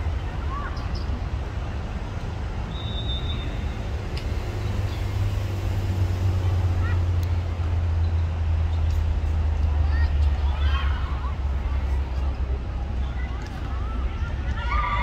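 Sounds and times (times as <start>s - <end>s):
crowd rumble: 4.3s - 15.0s
distant shouts: 9.7s - 15.0s.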